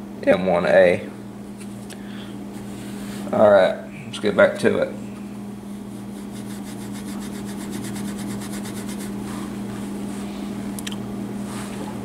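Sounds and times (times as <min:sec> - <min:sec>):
steel wool rasping on wood: 0:06.0 - 0:09.2.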